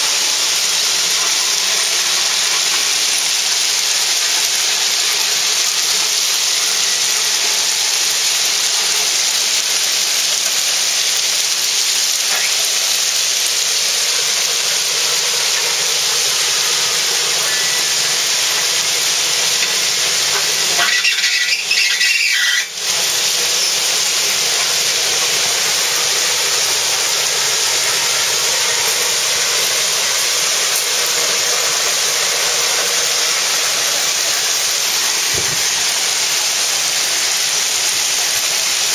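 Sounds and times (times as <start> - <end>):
steel blade scraping ballast: 17.1 - 23.7.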